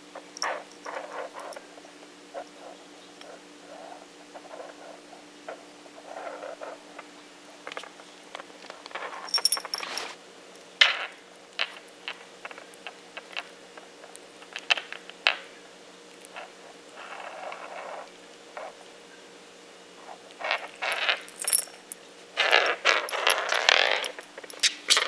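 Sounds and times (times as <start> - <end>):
collar tag jingling: 9.2 - 10.1, 20.8 - 22.0.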